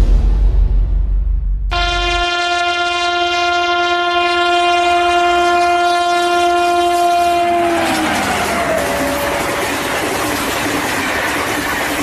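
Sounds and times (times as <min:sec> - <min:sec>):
locomotive horn blast: 0:01.7 - 0:09.9
passing train clatter: 0:01.7 - 0:12.0.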